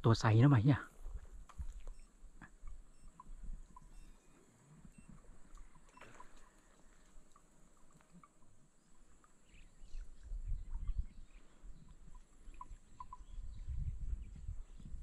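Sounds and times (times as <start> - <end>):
faint animal chirps: 1.6 - 7.2, 9.5 - 14.5
low rumble on microphone: 9.4 - 15.0.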